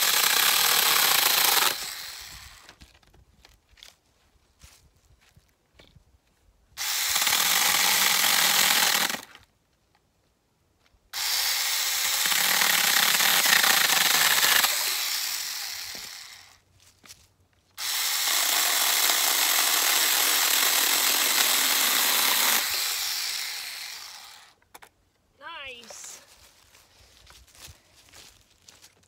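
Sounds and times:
small chainsaw cutting branch: 0:00.0 - 0:02.8, 0:06.8 - 0:09.4, 0:11.2 - 0:16.6, 0:17.8 - 0:24.6.

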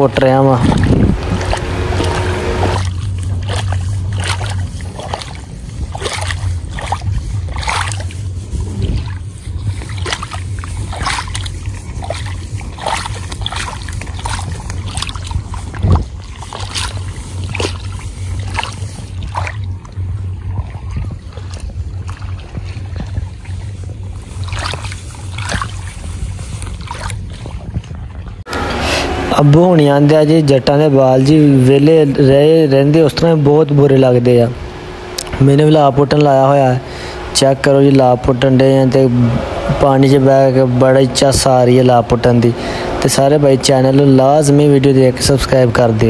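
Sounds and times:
low rumble: 0:00.4 - 0:46.0
wet squelches and splashes of mud: 0:02.6 - 0:28.4.

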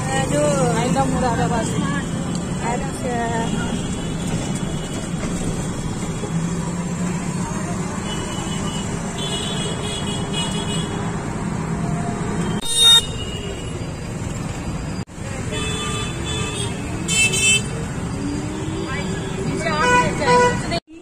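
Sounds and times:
auto-rickshaw engine droning: 0:00.0 - 0:20.8
road noise: 0:00.0 - 0:21.0
horn honk: 0:12.5 - 0:13.6.

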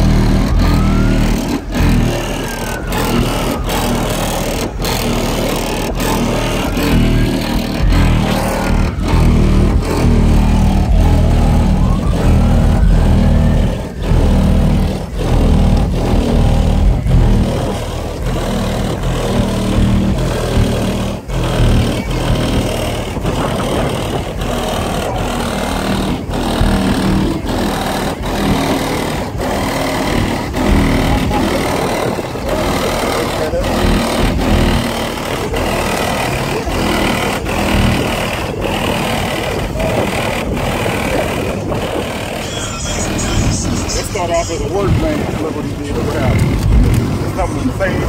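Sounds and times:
short rising tone: 0:00.0 - 0:20.1
bass-heavy music through subwoofers: 0:00.0 - 0:48.0.

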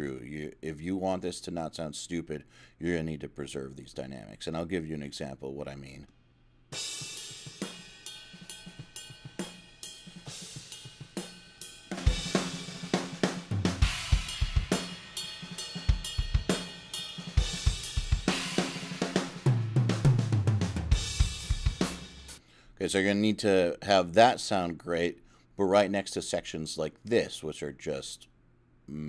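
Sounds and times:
cymbals: 0:06.7 - 0:22.4
crashing cymbals: 0:06.8 - 0:19.5
rapid kick drum strokes: 0:06.8 - 0:22.4
snare drum: 0:06.8 - 0:22.4.

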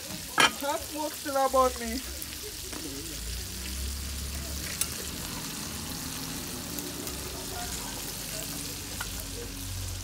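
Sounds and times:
food sizzling in pots: 0:00.0 - 0:10.0.

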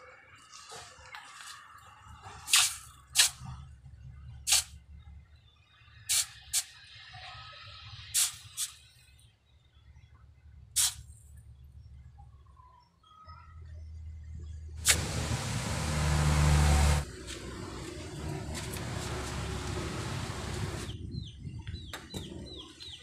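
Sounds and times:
steam hissing: 0:14.8 - 0:17.0, 0:18.8 - 0:20.9.

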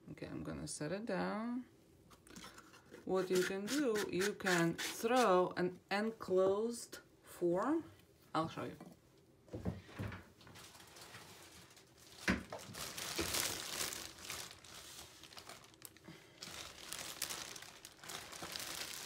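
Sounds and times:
plastic sheeting crinkling: 0:10.4 - 0:19.0.

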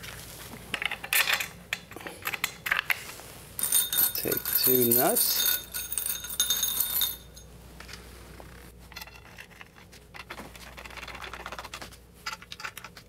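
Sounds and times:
metal nuts clinking in a bowl: 0:03.6 - 0:07.5.

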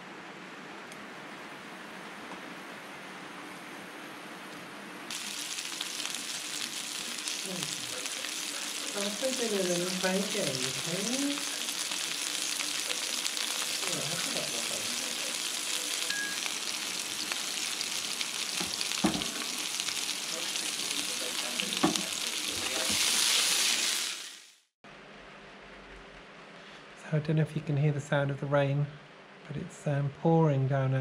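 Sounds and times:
mushrooms sizzling in a frying pan: 0:05.1 - 0:24.7.

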